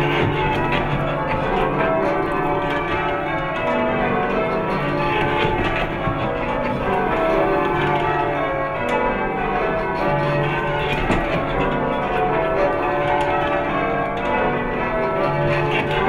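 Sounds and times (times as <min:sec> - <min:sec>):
church bells ringing: 0:00.0 - 0:16.0.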